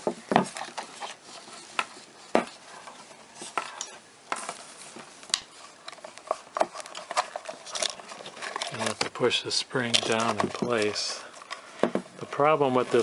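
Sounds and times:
plastic parts clicking and knocking: 5.3s - 9.2s, 9.8s - 13.0s.

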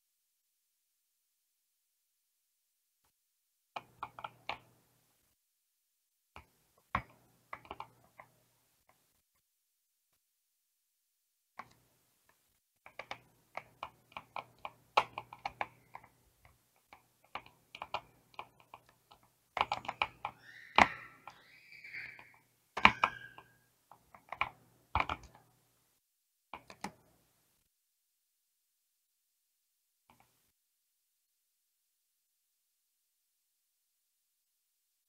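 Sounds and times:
keyboard keys clicking: 3.8s - 4.7s, 6.4s - 8.4s, 12.9s - 25.5s, 26.6s - 27.1s.

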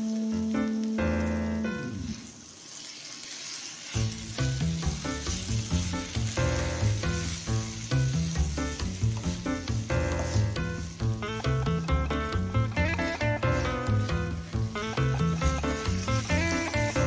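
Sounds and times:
food sizzling in a frying pan: 0.0s - 17.0s
spatula stir-frying: 0.0s - 17.0s
background music with steady beat: 4.2s - 17.0s.

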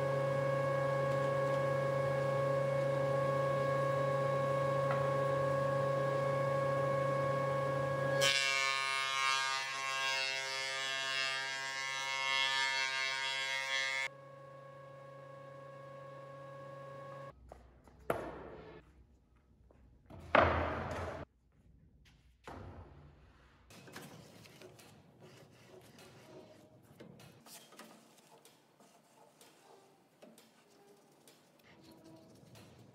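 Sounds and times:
thickness planer running: 0.0s - 17.3s.

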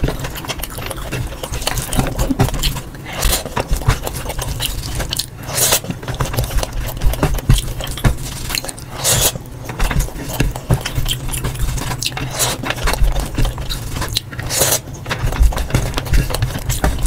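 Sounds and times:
chewing with wet mouth clicks: 0.1s - 8.0s.

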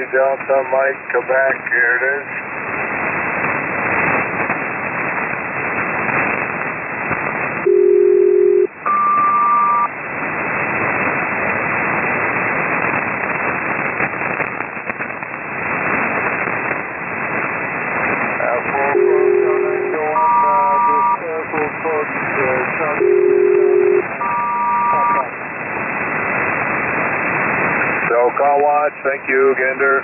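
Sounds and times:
paired radio tones: 0.0s - 2.5s, 7.6s - 10.0s, 12.9s - 30.0s
radio band hiss: 0.0s - 8.0s, 8.9s - 30.0s
static crackle: 0.0s - 30.0s.

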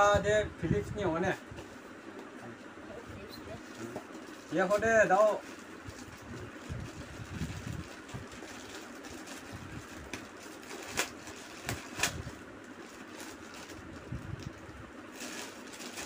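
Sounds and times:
plastic bag crinkling: 3.6s - 16.0s.

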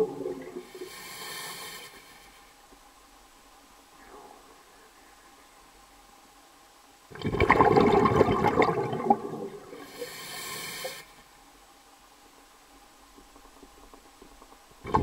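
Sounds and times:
thin high hiss: 0.5s - 2.9s, 9.8s - 11.5s.

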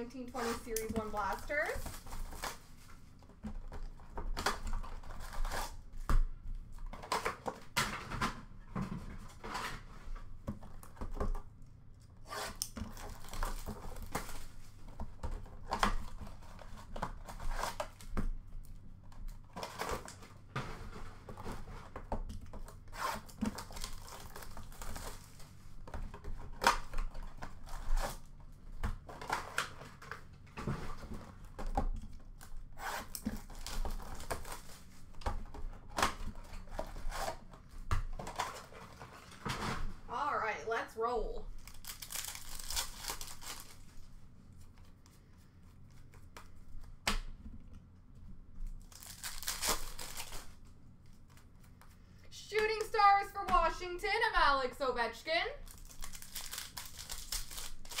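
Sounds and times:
cardboard tearing: 0.3s - 5.9s, 12.2s - 18.2s, 19.1s - 39.9s, 41.5s - 44.1s, 48.8s - 51.4s, 55.6s - 58.0s
pack wrappers crinkling: 23.2s - 25.6s, 41.5s - 44.0s, 48.7s - 51.5s, 55.6s - 58.0s.

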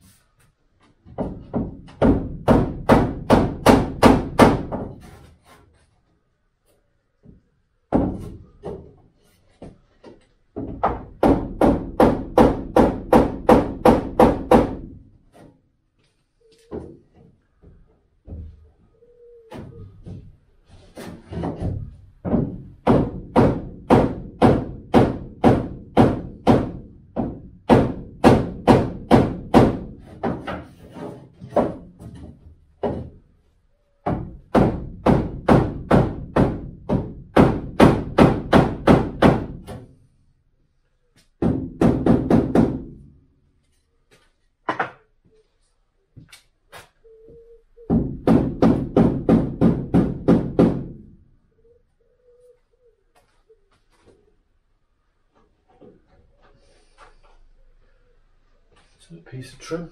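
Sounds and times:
hammer knocking on wooden block: 21.4s - 30.7s, 47.9s - 51.0s.

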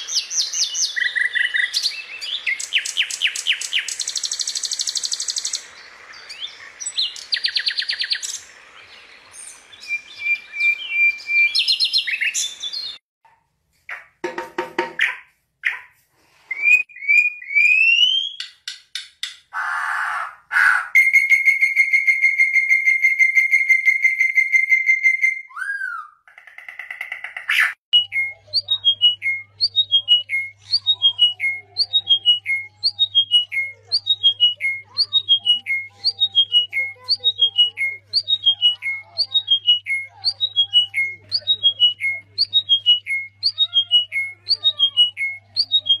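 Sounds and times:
songbird whistling song: 0.0s - 13.0s, 16.5s - 18.7s, 21.0s - 26.2s, 27.5s - 46.0s.

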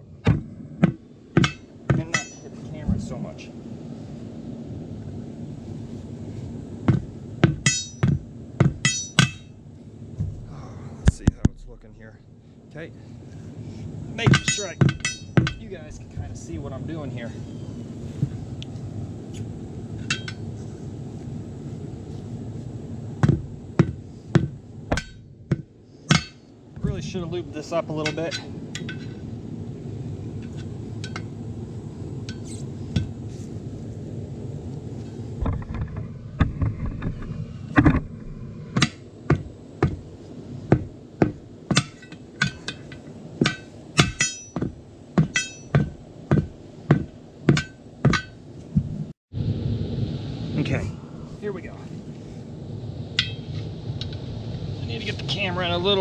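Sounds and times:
low steady rumble: 0.0s - 56.0s
hammer striking wheel rim: 0.2s - 2.4s, 6.9s - 9.5s, 14.2s - 15.6s, 23.2s - 26.5s, 38.7s - 40.0s, 40.7s - 48.4s.

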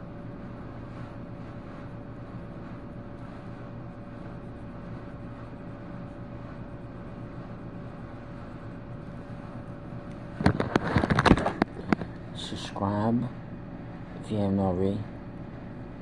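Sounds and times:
low mechanical hum: 0.0s - 16.0s
clattering and rustling close by: 10.2s - 12.2s.

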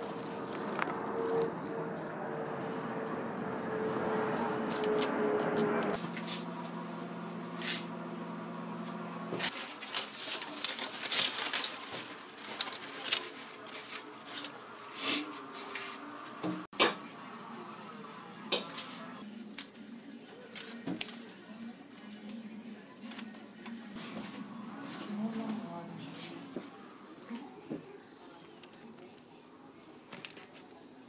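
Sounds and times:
aluminium foil crinkling: 0.0s - 1.5s, 9.4s - 16.1s, 19.6s - 24.3s, 28.0s - 31.0s
steady appliance hum: 0.0s - 31.0s.

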